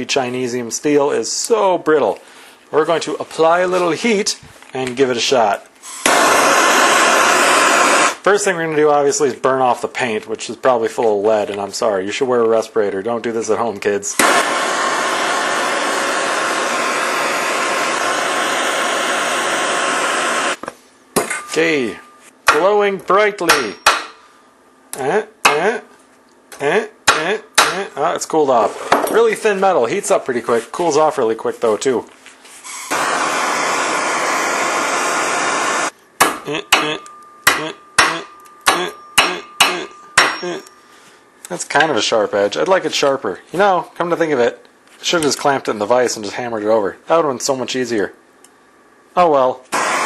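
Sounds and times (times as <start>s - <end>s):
gas torch flame hissing: 5.8s - 8.2s, 14.2s - 20.6s, 32.6s - 35.9s, 49.7s - 50.0s
torch ignition click: 6.0s - 8.2s, 14.2s - 20.5s
hammer striking metal blade: 23.5s - 24.2s, 27.1s - 27.8s, 36.2s - 40.8s.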